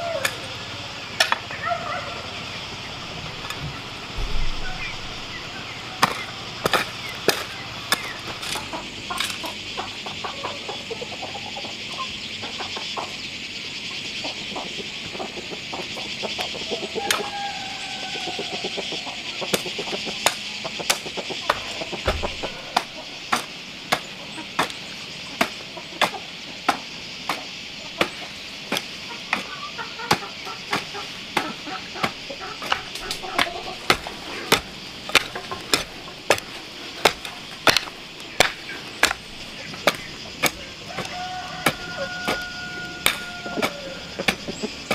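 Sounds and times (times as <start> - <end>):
hoe chopping into dry soil: 6.0 - 8.6, 19.5 - 24.8, 30.1 - 44.9.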